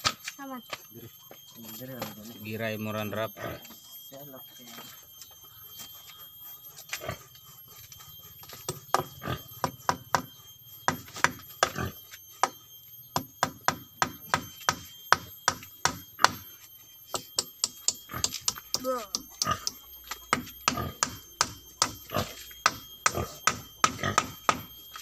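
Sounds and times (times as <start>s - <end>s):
hand tool striking: 8.5s - 10.3s, 10.9s - 11.8s, 13.2s - 16.4s, 17.1s - 25.0s.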